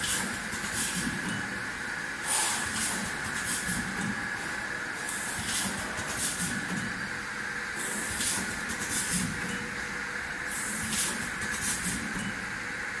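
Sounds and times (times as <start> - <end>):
air hissing bursts: 2.2 - 3.8.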